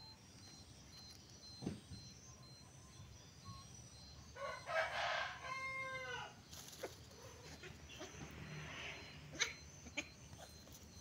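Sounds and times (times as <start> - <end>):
rooster crowing: 4.4 - 6.4.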